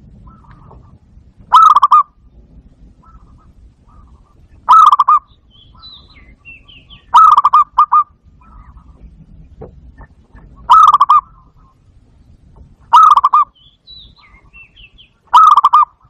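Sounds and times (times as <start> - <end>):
dove cooing: 0.1 - 2.2, 3.0 - 11.8, 12.9 - 13.6, 15.3 - 16.0.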